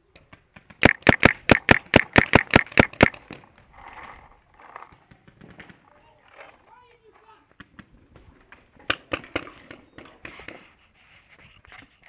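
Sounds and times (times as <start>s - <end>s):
paintball marker firing: 0.2s - 3.4s.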